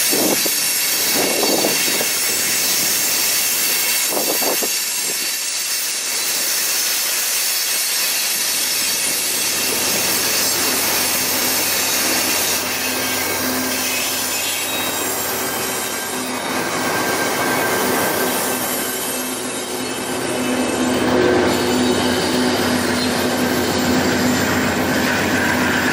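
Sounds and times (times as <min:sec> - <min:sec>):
train wheels grinding and squealing: 0:00.0 - 0:25.9
diesel locomotive low hum: 0:09.2 - 0:25.9.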